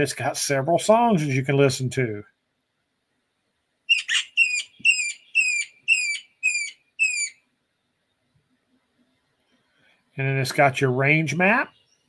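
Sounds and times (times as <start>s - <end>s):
high whistled bird calls: 3.9s - 7.4s.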